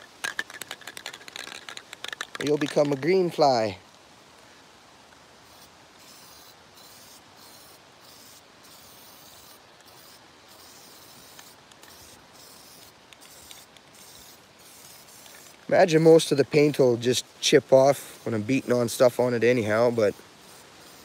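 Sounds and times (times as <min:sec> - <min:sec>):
spray can hissing: 0:00.2 - 0:03.0, 0:05.4 - 0:15.6, 0:19.8 - 0:21.0.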